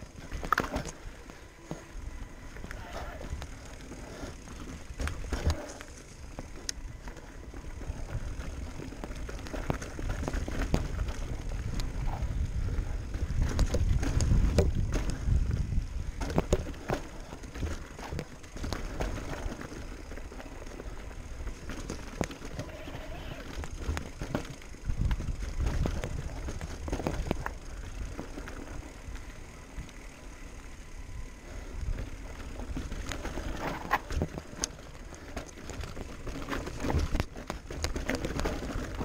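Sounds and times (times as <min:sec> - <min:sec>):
bike rattling clicks and knocks: 0:00.0 - 0:39.0
bike tyres on dirt and rock: 0:00.0 - 0:39.0
wind rumble on microphone: 0:02.2 - 0:19.6, 0:22.5 - 0:28.8.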